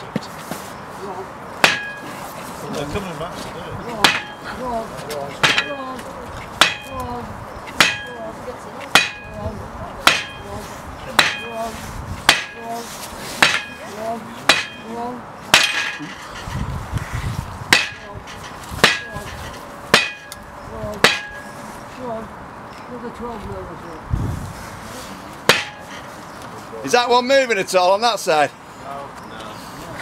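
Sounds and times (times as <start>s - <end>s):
sledgehammer blows on steel: 1.6s - 2.2s, 7.8s - 8.2s, 8.9s - 9.4s, 11.1s - 12.7s, 13.4s - 13.8s, 14.5s - 14.9s, 17.7s - 18.2s, 18.8s - 20.4s, 21.0s - 21.6s, 25.4s - 26.0s.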